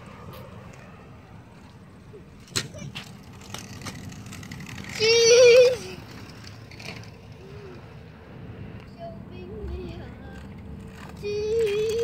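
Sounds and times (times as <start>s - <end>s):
scooter wheels rolling on concrete: 0.0s - 12.0s
child calling out: 4.9s - 6.0s.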